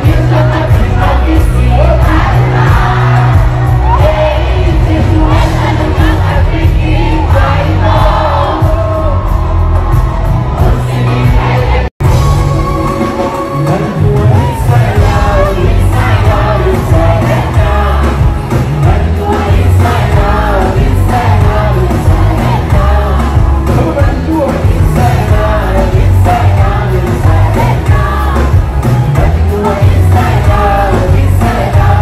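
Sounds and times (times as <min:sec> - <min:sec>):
man singing into a microphone: 0:00.0 - 0:09.3, 0:13.4 - 0:32.0
live band with bass-heavy beat: 0:00.0 - 0:32.0.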